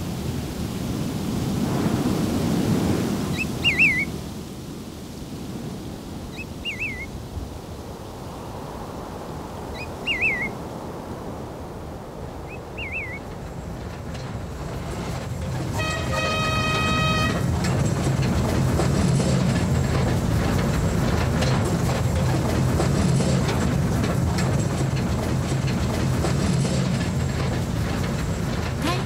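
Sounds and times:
steady rushing noise: 0:00.0 - 0:29.0
songbird whistled call: 0:03.3 - 0:04.2, 0:06.3 - 0:07.2, 0:09.7 - 0:10.6, 0:12.5 - 0:13.3.

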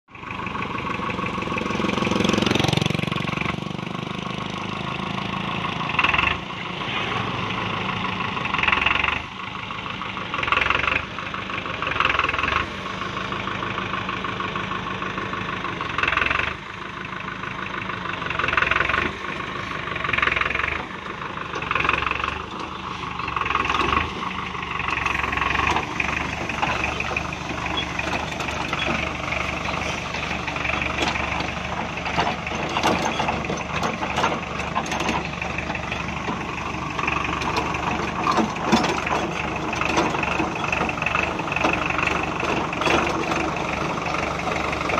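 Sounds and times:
tractor engine under load: 0:00.0 - 0:44.9
rotary tiller churning brush: 0:18.8 - 0:44.9.

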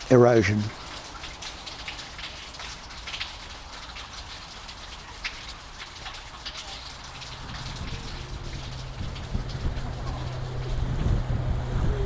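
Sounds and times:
water trickling and dripping: 0:00.0 - 0:12.0
wind rumbling on microphone: 0:07.2 - 0:12.0.

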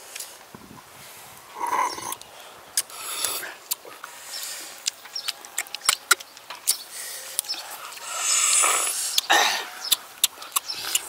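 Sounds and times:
long breathy hiss: 0:00.0 - 0:04.8, 0:06.9 - 0:09.8.

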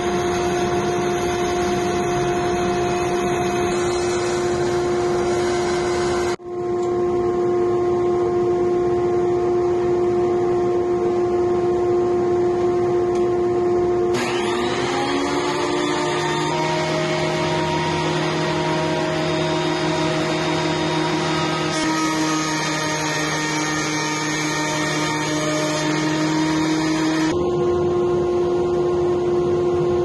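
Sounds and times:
planer motor whine: 0:00.0 - 0:06.4, 0:14.1 - 0:27.7
woodworking machinery humming: 0:00.0 - 0:06.4, 0:14.1 - 0:30.0.

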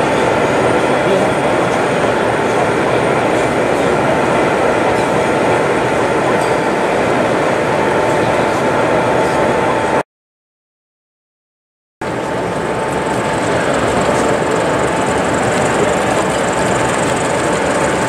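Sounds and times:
steady whine: 0:00.0 - 0:10.0, 0:12.0 - 0:18.0
model diesel engine sound: 0:12.0 - 0:18.0
wheels on track: 0:12.2 - 0:18.0.

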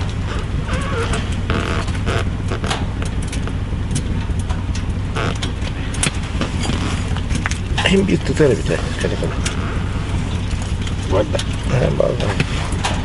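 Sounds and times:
steady low hum: 0:00.0 - 0:13.0
fishing tackle clicks and rustles: 0:09.0 - 0:13.0.

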